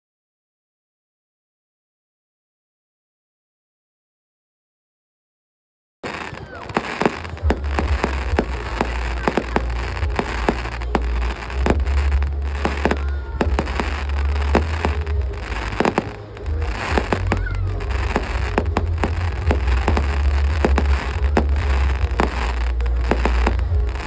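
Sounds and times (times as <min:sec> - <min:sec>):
low rumble: 0:06.6 - 0:24.0.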